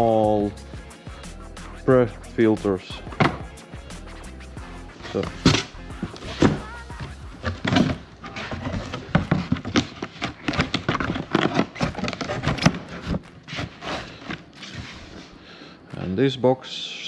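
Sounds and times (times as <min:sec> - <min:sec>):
cardboard boxes being handled: 0:05.0 - 0:15.3.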